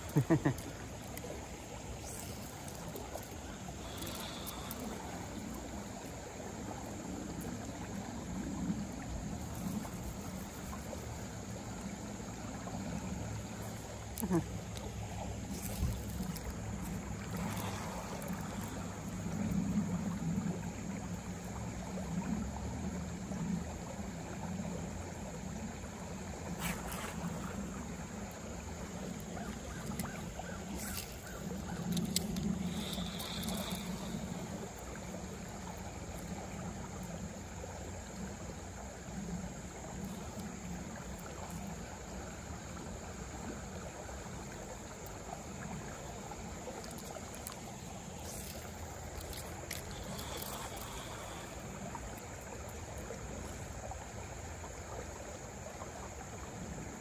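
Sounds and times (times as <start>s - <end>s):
creek water trickling: 0.0s - 57.0s
faint clicks: 2.0s - 5.6s, 30.8s - 34.2s.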